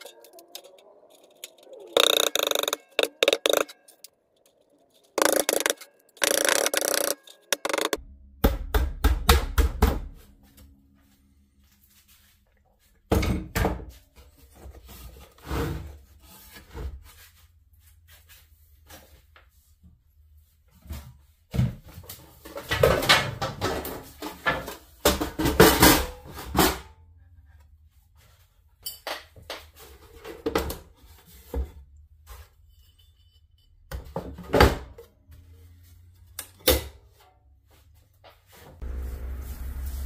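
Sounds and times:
clattering and rustling: 20.6 - 40.0.

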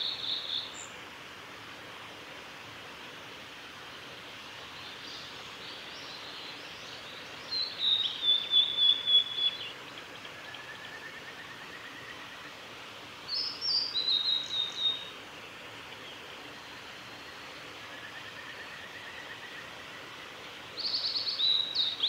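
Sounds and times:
flycatcher singing: 7.0 - 9.7, 13.3 - 15.1.

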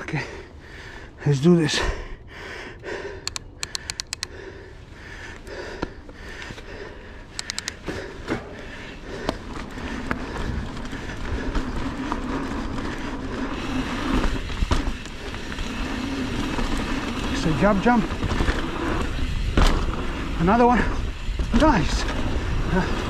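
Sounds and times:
bike clicks and rattles: 2.8 - 23.0
tyre and wind noise: 7.7 - 23.0.

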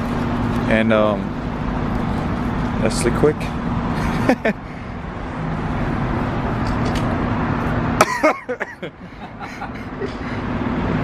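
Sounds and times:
low hum of traffic and machinery: 0.0 - 11.0
voice: 0.7 - 1.3, 2.8 - 3.5.

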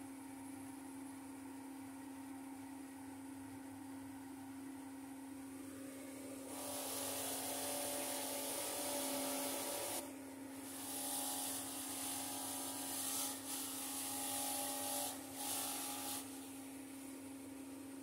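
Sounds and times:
bench grinder humming: 6.5 - 16.5.

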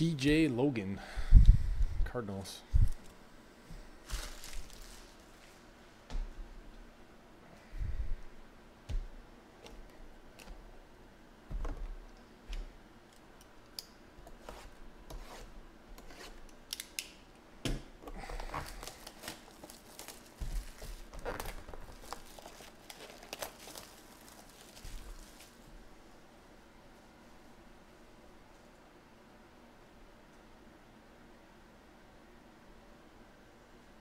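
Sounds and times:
plastic shrink wrap crackling: 4.0 - 5.6, 18.4 - 25.7.

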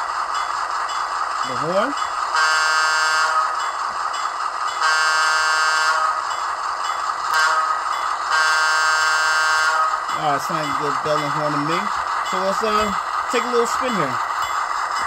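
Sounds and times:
model locomotive diesel horn: 2.4 - 3.5, 4.8 - 6.2, 7.3 - 10.0.

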